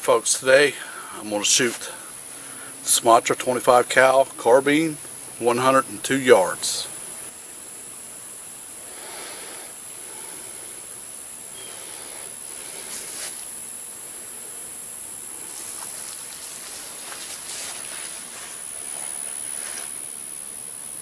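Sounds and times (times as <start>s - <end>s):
high-pitched insect drone: 0.0s - 21.0s
soft background hiss: 0.0s - 21.0s
faint rustles: 11.7s - 13.5s, 15.4s - 20.0s.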